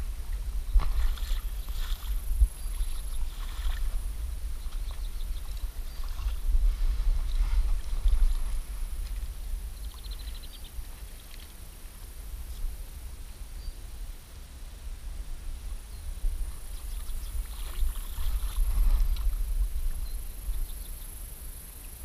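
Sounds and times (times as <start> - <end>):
wind buffeting microphone: 0.0 - 11.2, 15.3 - 21.4
footsteps through wet grass: 0.0 - 12.2, 16.5 - 20.2.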